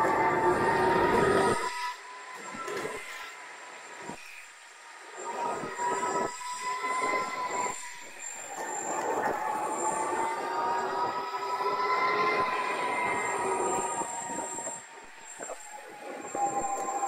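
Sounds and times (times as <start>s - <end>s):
electric motor whine: 0.0s - 17.0s
wheels rushing on road: 5.2s - 17.0s.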